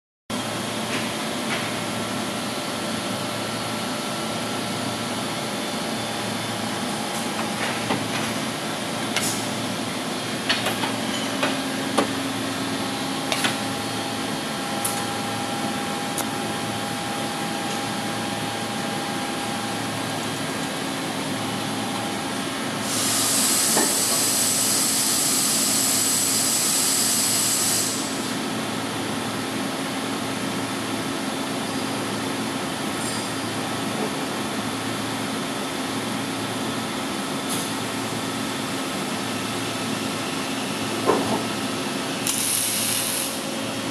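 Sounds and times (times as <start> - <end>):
punch press mechanical hum: 0.3 - 43.9
loud compressed air hiss: 22.8 - 28.3.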